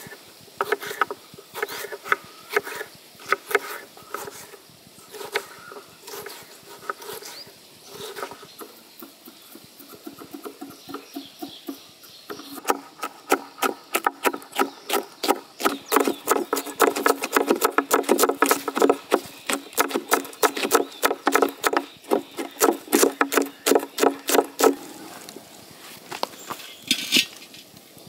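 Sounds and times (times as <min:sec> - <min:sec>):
knife chopping on wooden board: 0:09.9 - 0:24.8.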